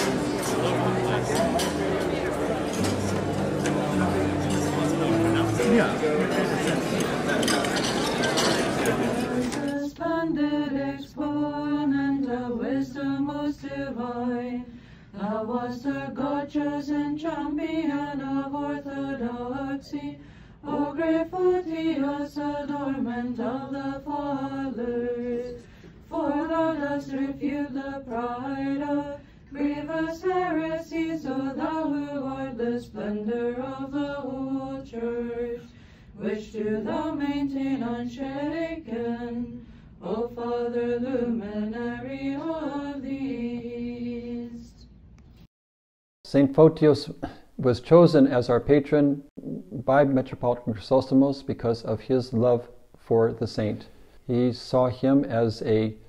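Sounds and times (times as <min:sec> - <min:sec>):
group chanting a hymn: 0:00.0 - 0:44.6.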